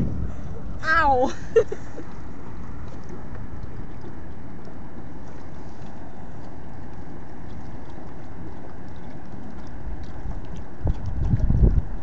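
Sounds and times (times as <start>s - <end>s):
wind noise on microphone: 0.0s - 1.0s, 10.2s - 12.0s.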